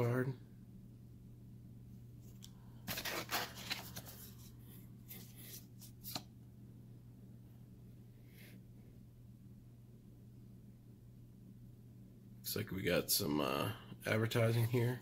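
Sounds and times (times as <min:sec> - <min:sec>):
paper cards rustling: 0:02.2 - 0:06.3.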